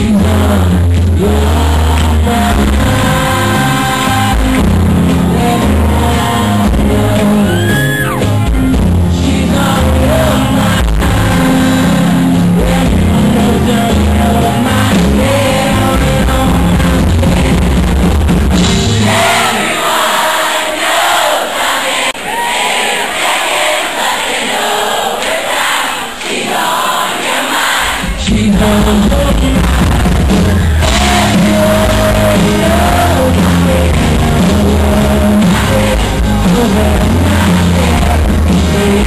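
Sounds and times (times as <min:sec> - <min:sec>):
man singing lead vocal: 0:00.0 - 0:18.0, 0:18.6 - 0:21.3, 0:27.6 - 0:39.0
live rock band playing: 0:00.0 - 0:20.2, 0:28.0 - 0:39.0
crowd cheering: 0:01.8 - 0:08.7, 0:17.3 - 0:28.4, 0:29.5 - 0:39.0.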